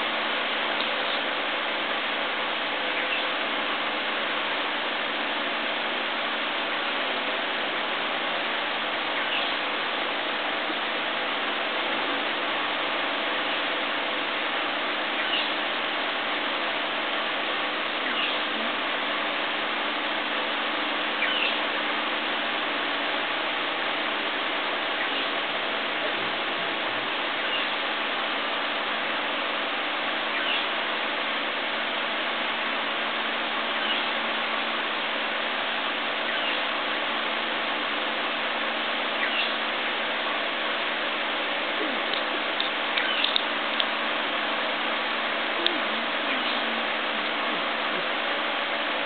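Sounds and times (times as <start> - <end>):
constant low hum: 0.0 - 49.0
outdoor background hiss: 0.0 - 49.0
faint bird chirp: 2.8 - 3.4, 9.0 - 9.7, 15.1 - 15.6, 17.9 - 18.7, 21.2 - 21.8, 24.9 - 25.4, 27.4 - 27.8, 30.2 - 30.8, 33.7 - 34.2, 36.2 - 36.7, 39.1 - 39.6, 41.7 - 43.5, 45.5 - 46.9.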